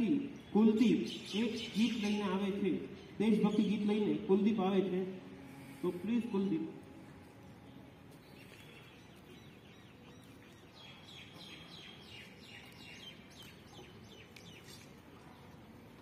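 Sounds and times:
faint background noise: 0.0s - 16.0s.

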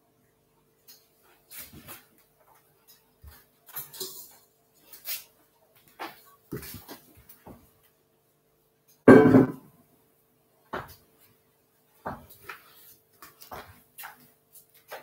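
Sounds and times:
thump: 9.1s - 9.6s.

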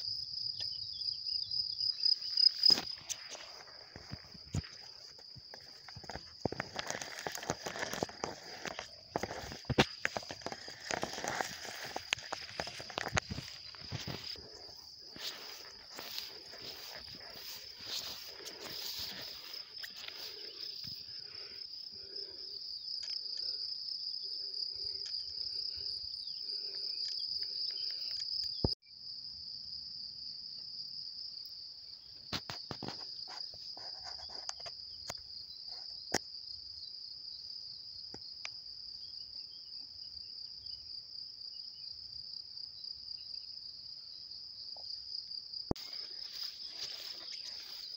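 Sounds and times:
insects chirring: 0.0s - 47.9s
grass rustling: 2.0s - 22.4s, 45.8s - 47.9s.

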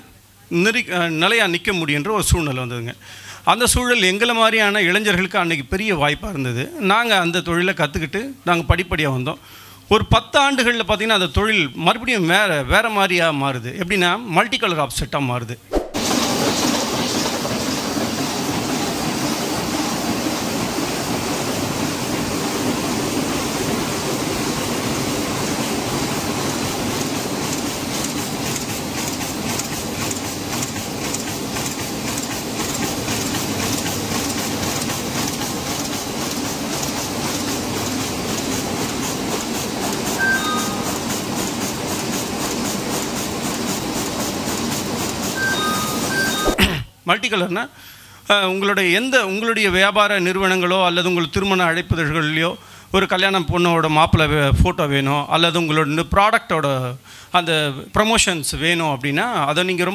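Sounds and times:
printing press clatter: 16.0s - 46.5s.

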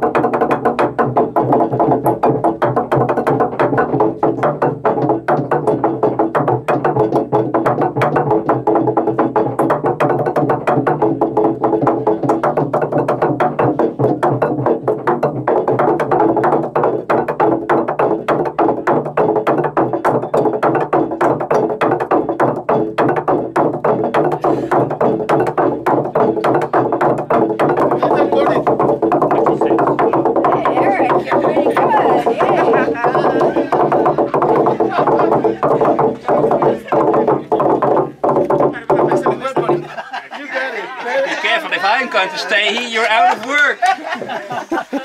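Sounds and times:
fast drumming on wooden drums: 0.0s - 40.1s
steady held tones: 23.9s - 40.5s.

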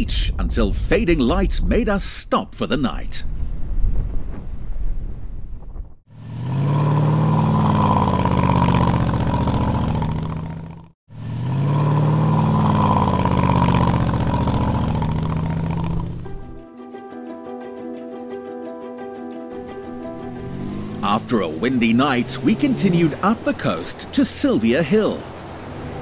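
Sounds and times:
engine revving: 6.1s - 16.6s, 19.6s - 26.0s.

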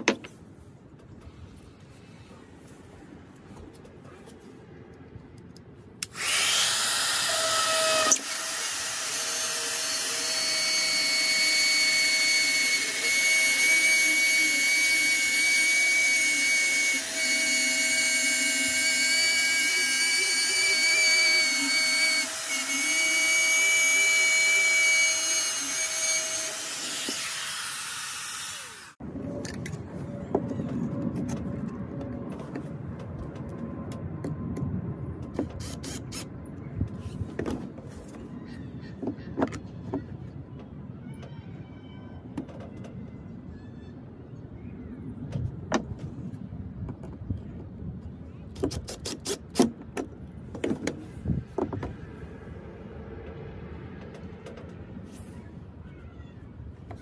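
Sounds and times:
power cutting tool whining: 6.0s - 29.0s.

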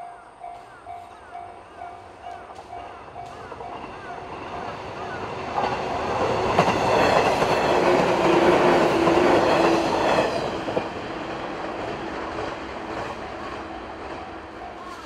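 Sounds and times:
level crossing warning bell: 0.0s - 7.0s, 14.4s - 15.0s
electric train passing: 0.0s - 15.0s.

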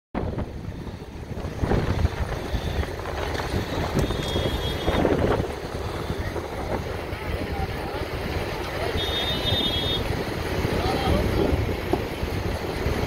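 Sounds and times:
fire roaring: 0.2s - 13.0s
fire popping and crackling: 1.3s - 6.4s.

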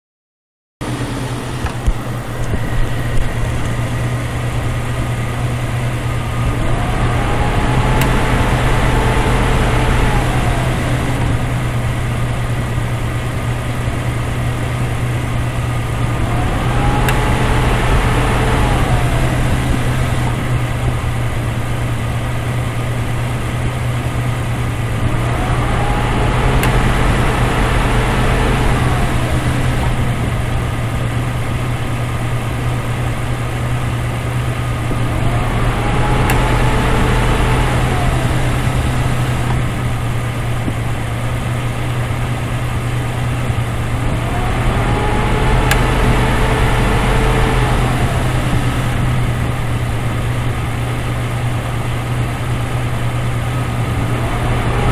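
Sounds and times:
car engine idling: 0.8s - 54.9s
compressor whine: 0.8s - 54.9s
compressor clutch click: 16.8s - 17.7s, 25.0s - 30.4s, 34.9s - 40.8s, 44.1s - 49.4s.

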